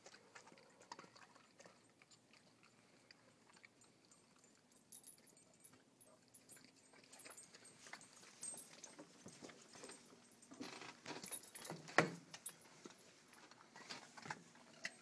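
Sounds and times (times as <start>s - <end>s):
dog chewing: 0.0s - 10.3s.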